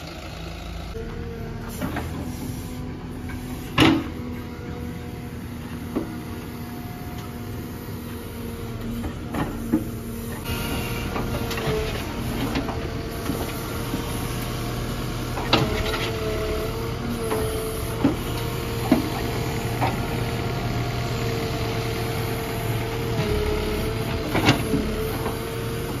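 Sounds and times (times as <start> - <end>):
backhoe digging and scraping soil: 0.0 - 26.0
diesel engine running: 0.0 - 26.0
hydraulic whine: 7.2 - 26.0.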